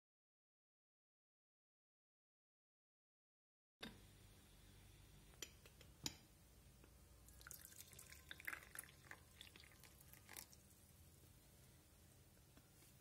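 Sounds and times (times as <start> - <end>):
tea pouring into a mug: 7.3 - 10.9.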